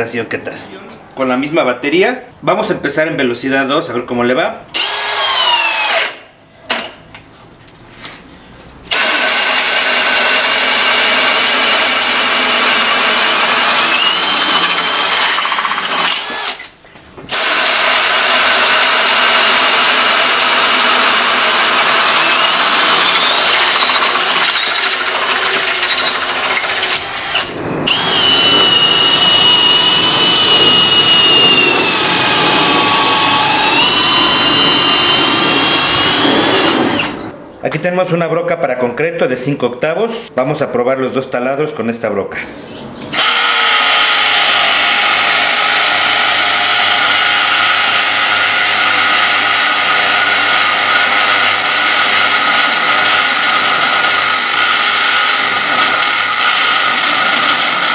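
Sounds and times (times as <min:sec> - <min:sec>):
drill boring into wood: 0:04.7 - 0:06.9, 0:08.9 - 0:16.7, 0:17.3 - 0:37.3, 0:43.1 - 0:57.9.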